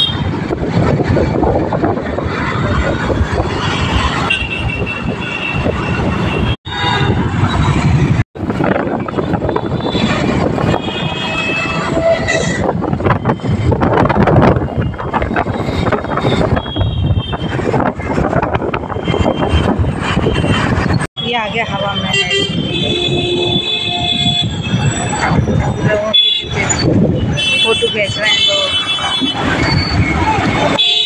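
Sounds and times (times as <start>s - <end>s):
wind on microphone: 0.0s - 30.9s
scooter engine and road noise: 0.0s - 31.0s
street traffic: 0.0s - 31.0s
vehicle horns honking: 3.6s - 7.5s, 9.1s - 13.6s, 21.7s - 31.0s.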